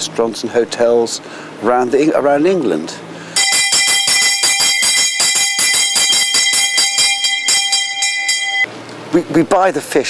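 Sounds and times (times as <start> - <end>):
bell ringing rapidly: 3.4 - 8.7.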